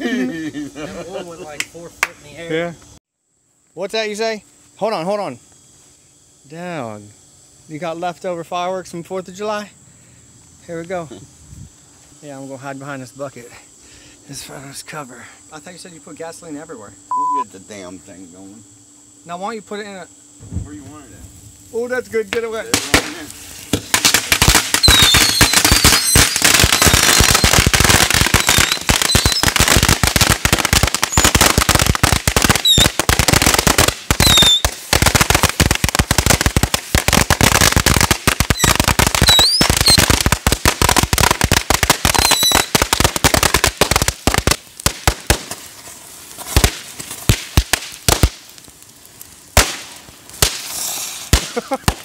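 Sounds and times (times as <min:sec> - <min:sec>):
firework whistles: 0:19.3 - 0:48.8, 0:49.5 - 0:52.0
firecracker cracks and bangs: 0:20.4 - 0:52.0.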